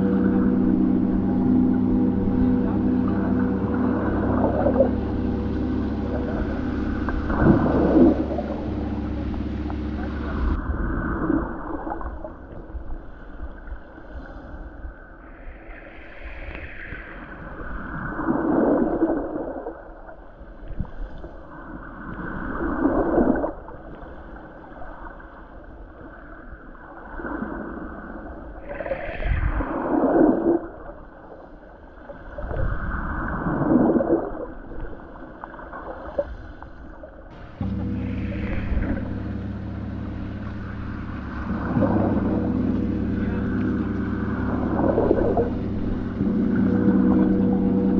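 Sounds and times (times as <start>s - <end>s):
muffled underwater gurgling: 0.0s - 12.4s, 37.3s - 47.9s.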